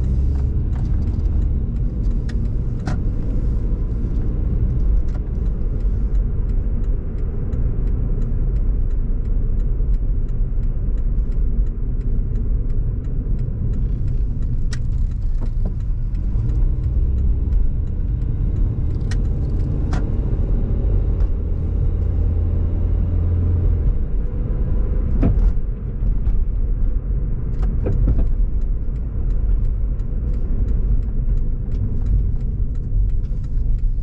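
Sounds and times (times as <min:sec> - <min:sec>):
light clicks or rattles: 0:00.0 - 0:22.6
car road and engine rumble: 0:00.0 - 0:34.0.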